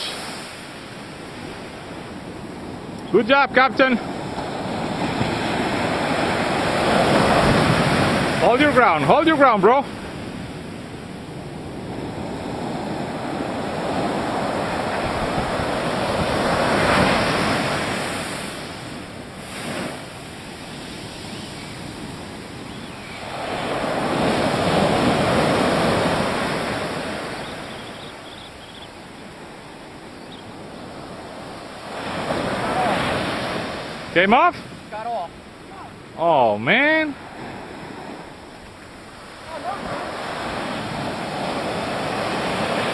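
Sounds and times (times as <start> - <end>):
ocean surf breaking on beach: 0.0 - 42.9.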